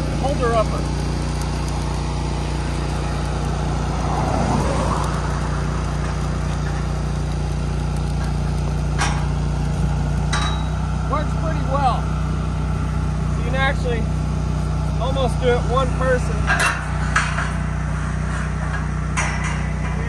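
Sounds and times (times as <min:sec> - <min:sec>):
small engine idling: 0:00.0 - 0:16.5
sharp metallic clanks: 0:08.1 - 0:09.4, 0:10.2 - 0:10.9, 0:16.2 - 0:20.0.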